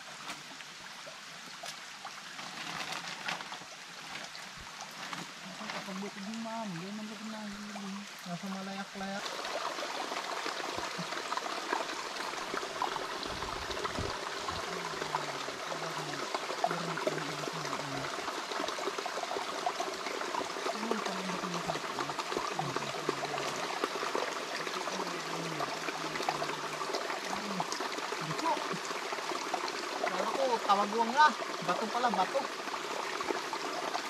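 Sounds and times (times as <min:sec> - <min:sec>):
stream trickling over rocks: 0:00.0 - 0:34.0.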